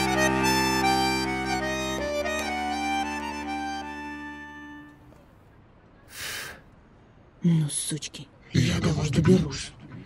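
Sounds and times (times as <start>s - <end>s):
folk melody over a drone: 0.0s - 5.4s.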